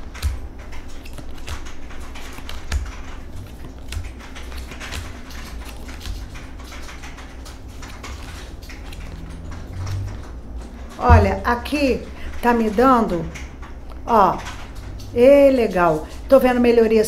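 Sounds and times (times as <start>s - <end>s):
cards clicking and tapping: 0.0s - 11.4s.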